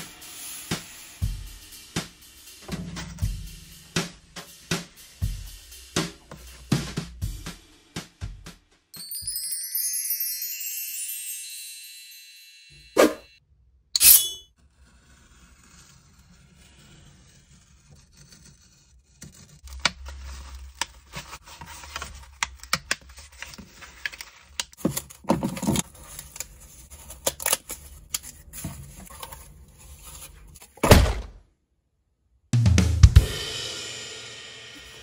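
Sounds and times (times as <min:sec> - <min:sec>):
knife scraping cardboard: 0:14.0 - 0:30.8
cardboard rustling: 0:19.6 - 0:30.8.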